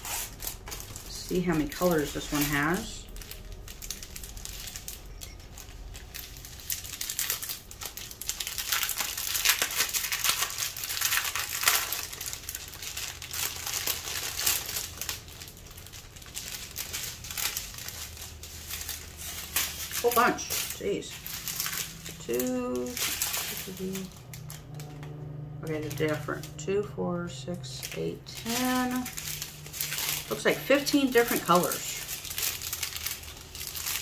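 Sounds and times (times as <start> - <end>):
plastic bags crinkling: 0.0 - 34.0.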